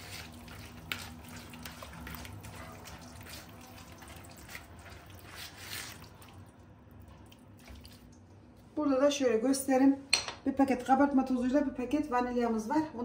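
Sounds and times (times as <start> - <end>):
wet squishing of hand mixing: 0.0 - 8.7.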